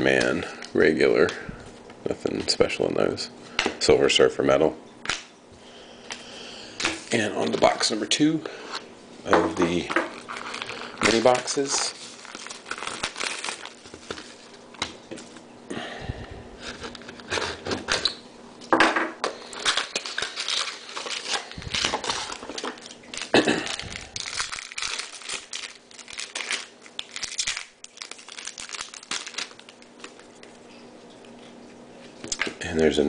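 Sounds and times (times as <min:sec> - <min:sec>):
foil wrappers crinkling and tearing: 0:09.7 - 0:15.4, 0:19.2 - 0:30.8.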